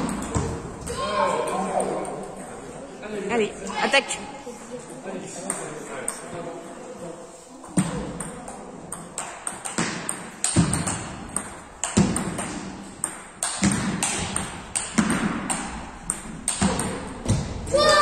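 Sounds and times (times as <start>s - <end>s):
table tennis ball clicking: 8.2s - 17.2s.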